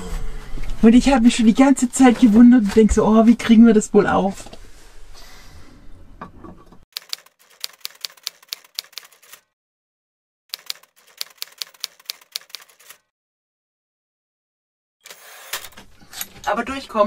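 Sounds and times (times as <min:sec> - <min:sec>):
typewriter keys clacking: 0:07.0 - 0:09.4, 0:10.5 - 0:13.0.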